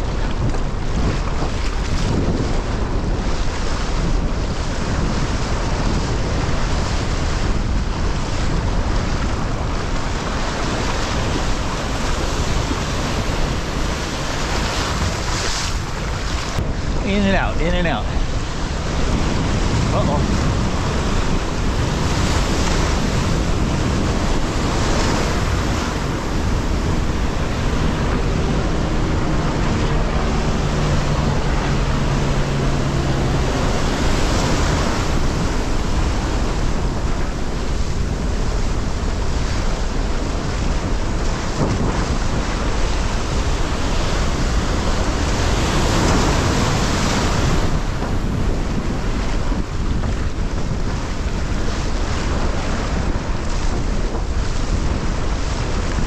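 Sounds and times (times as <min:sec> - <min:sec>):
breaking surf: 0:00.0 - 0:56.0
water rushing and splashing: 0:00.0 - 0:56.0
wind buffeting microphone: 0:00.0 - 0:56.0.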